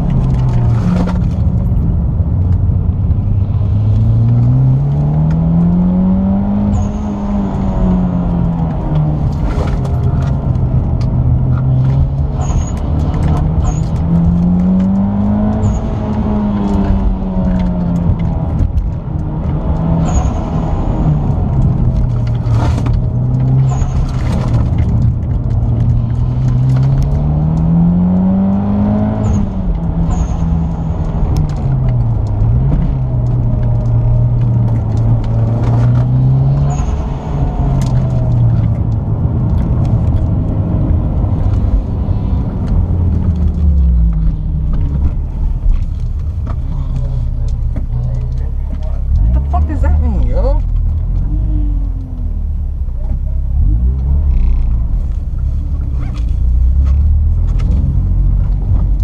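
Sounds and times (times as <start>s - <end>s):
car engine revving from inside cabin: 3.4s - 45.6s.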